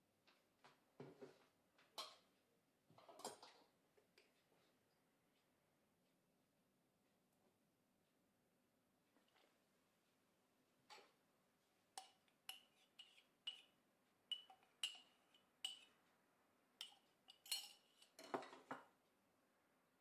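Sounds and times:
kitchenware clinks and taps: 0:02.9 - 0:03.7, 0:16.8 - 0:18.9.

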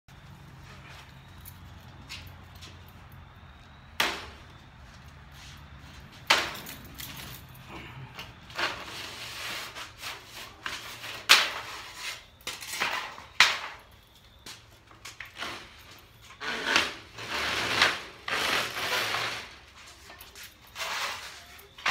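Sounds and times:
scraping and rattling: 0:05.5 - 0:13.8, 0:15.1 - 0:21.9.

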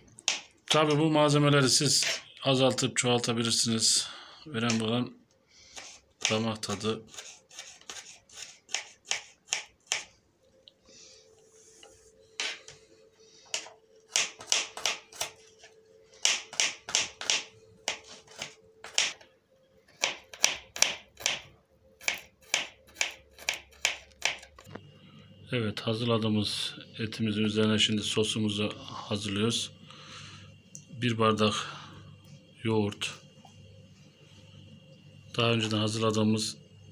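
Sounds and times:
knife chopping on cutting board: 0:07.6 - 0:10.1, 0:14.1 - 0:15.4, 0:16.2 - 0:19.2, 0:20.0 - 0:21.4, 0:22.0 - 0:24.5.

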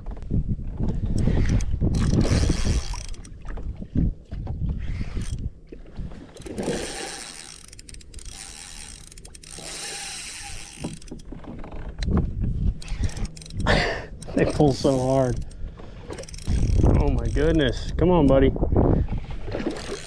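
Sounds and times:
wind on microphone: 0:00.0 - 0:06.9, 0:11.8 - 0:20.0
fishing reel ratcheting: 0:01.1 - 0:03.4, 0:04.8 - 0:05.5, 0:06.3 - 0:11.8, 0:12.8 - 0:17.9, 0:19.7 - 0:20.0.

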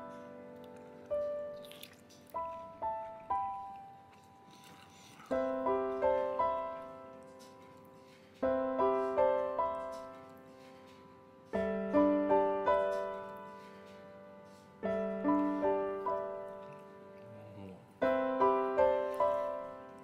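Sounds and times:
piano arpeggios: 0:02.3 - 0:04.1, 0:05.3 - 0:07.2, 0:11.6 - 0:17.2, 0:18.0 - 0:20.0.

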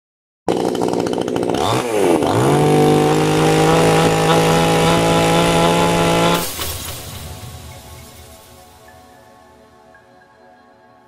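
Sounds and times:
chainsaw engine revving: 0:00.5 - 0:08.5.

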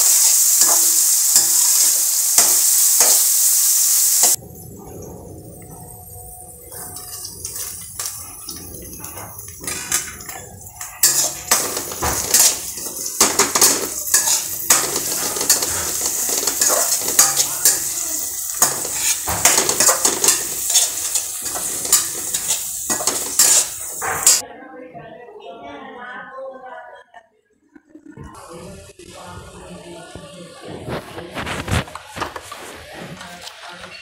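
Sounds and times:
onions sizzling in oil: 0:00.0 - 0:04.4, 0:06.4 - 0:24.4
spatula scraping metal pan: 0:07.0 - 0:24.4.

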